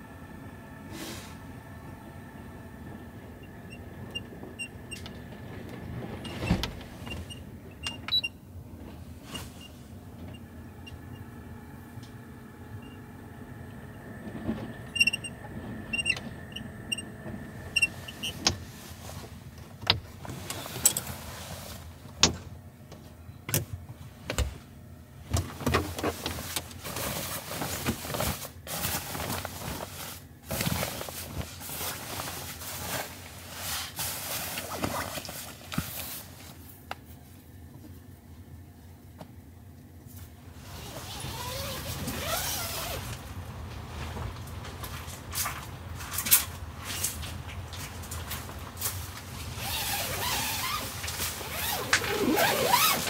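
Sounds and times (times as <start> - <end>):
fabric rustling: 47.8 - 53.0.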